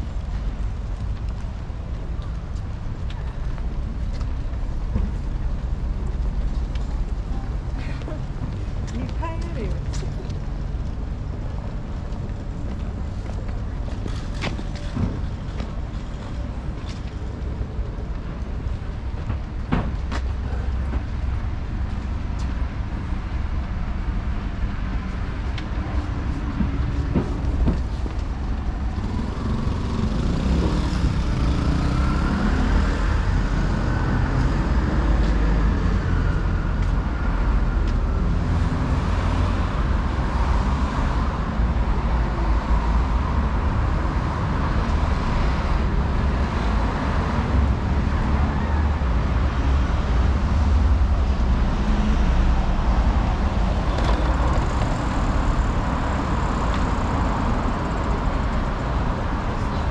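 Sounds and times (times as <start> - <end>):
road traffic rumble: 0.0 - 59.9.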